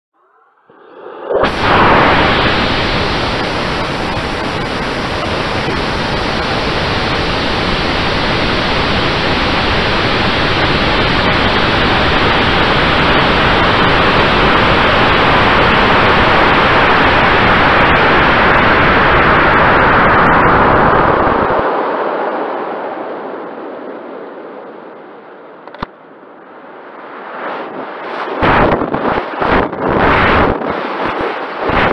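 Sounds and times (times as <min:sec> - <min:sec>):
rocket motor rushing hiss: 0:01.3 - 0:19.8.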